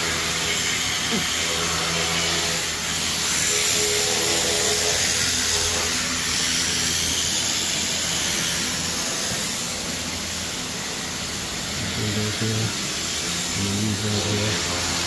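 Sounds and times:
pressure washer water spray hiss: 0:05.0 - 0:15.0.

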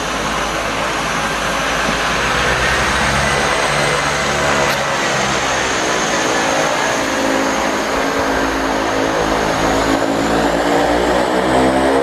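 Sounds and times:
high turbine whine: 0:00.0 - 0:12.0
propeller drone: 0:00.0 - 0:12.0.

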